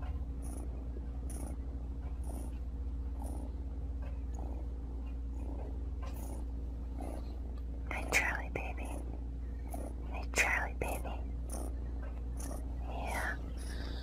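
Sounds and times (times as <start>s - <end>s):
cat purring: 0.0s - 14.0s
soft breath sound: 12.4s - 14.0s.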